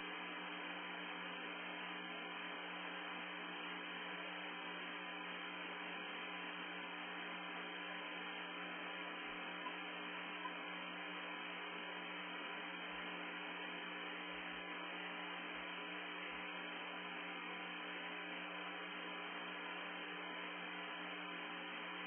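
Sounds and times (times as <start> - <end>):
faint constant tones: 0.0 - 22.0.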